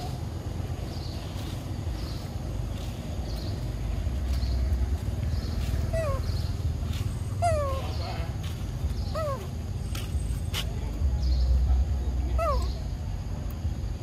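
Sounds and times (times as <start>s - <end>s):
steady low rumble: 0.0s - 14.0s
squeaky animal calls: 5.9s - 6.6s, 7.2s - 8.4s, 9.0s - 9.6s, 12.3s - 12.8s.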